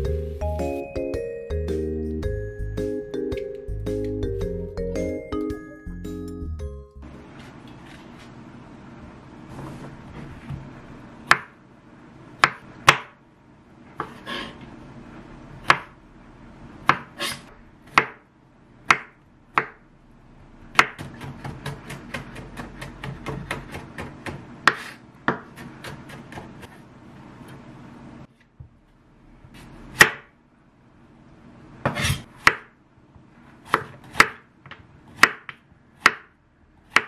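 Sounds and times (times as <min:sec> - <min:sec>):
knife chopping on wooden board: 0:11.3 - 0:11.6, 0:12.4 - 0:13.2, 0:14.0 - 0:14.6, 0:15.6 - 0:16.0, 0:16.8 - 0:18.2, 0:18.9 - 0:19.8, 0:20.7 - 0:26.7, 0:29.6 - 0:30.3, 0:31.8 - 0:32.7, 0:33.7 - 0:37.0.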